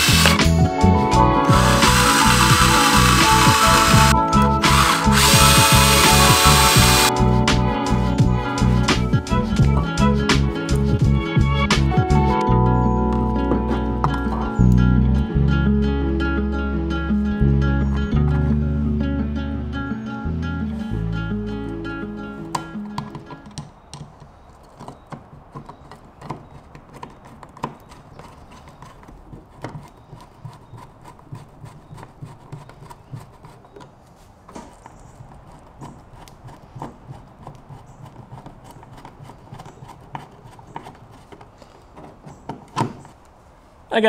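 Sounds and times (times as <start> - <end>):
screwdriver turning screws clicks: 0.0 - 0.5, 1.4 - 7.1
guitar music: 0.0 - 23.4.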